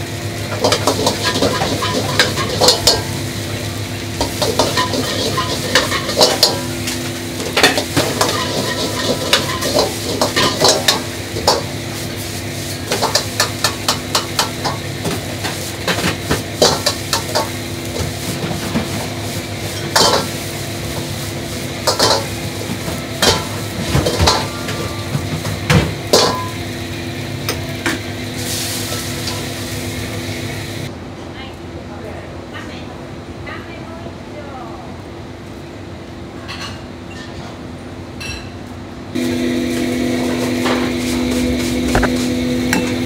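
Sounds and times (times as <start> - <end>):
food sizzling: 0.0 - 30.9, 39.2 - 43.0
ladle scraping and clanking on wok: 0.4 - 26.6.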